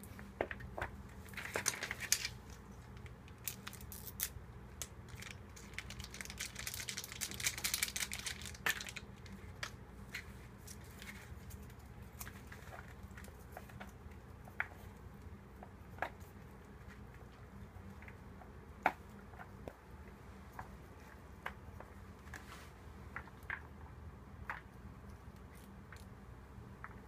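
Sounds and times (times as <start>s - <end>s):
seasoning packet tearing and crinkling: 3.4s - 4.4s, 5.1s - 9.7s.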